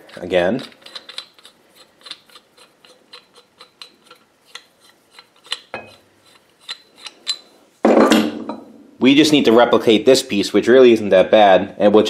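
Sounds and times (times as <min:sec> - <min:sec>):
metal threads clicking: 0:00.0 - 0:07.5.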